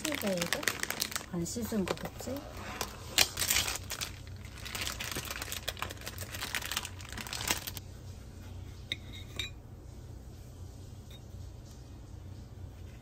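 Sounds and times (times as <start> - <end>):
food packaging crinkling: 0.0 - 7.8.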